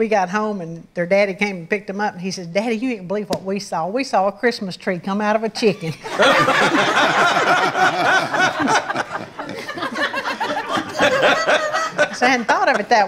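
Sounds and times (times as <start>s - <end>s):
audience laughing: 6.0s - 13.0s.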